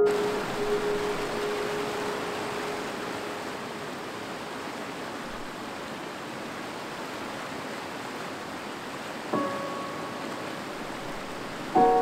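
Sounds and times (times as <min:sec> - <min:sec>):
background music note: 0:00.0 - 0:04.2
mountain stream rushing: 0:00.0 - 0:12.0.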